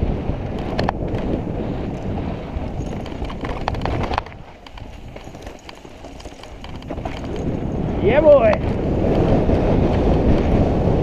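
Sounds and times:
bike clicking and rattling: 0.0 - 11.0
wind buffeting microphone: 0.0 - 11.0.

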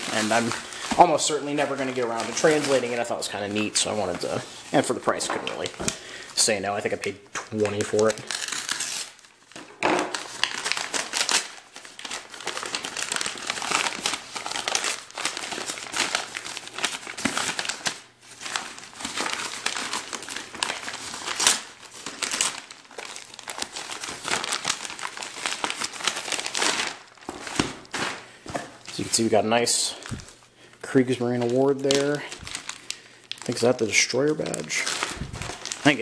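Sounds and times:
paper wrapping crinkling: 0.0 - 36.0.

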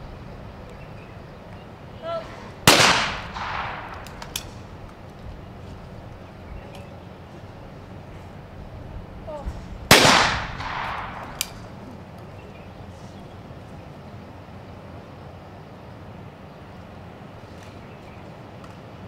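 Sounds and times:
shotgun shot with echo: 2.7 - 4.3, 9.9 - 11.6.

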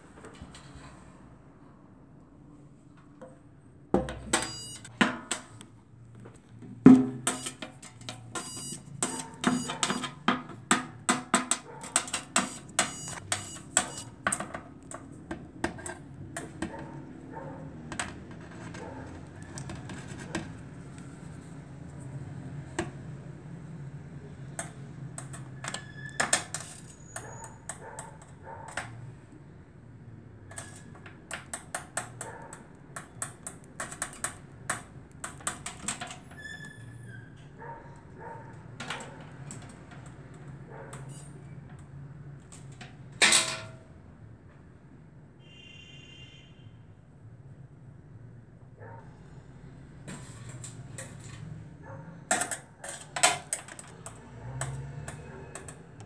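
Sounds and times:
clicks and taps on sheet metal: 4.0 - 5.8, 6.4 - 21.1, 24.4 - 29.0, 30.4 - 36.5, 38.5 - 43.8, 52.2 - 56.0.

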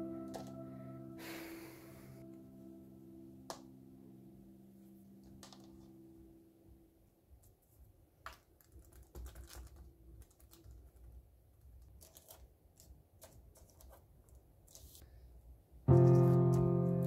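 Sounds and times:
hands tapping and rustling dough: 7.4 - 15.0.

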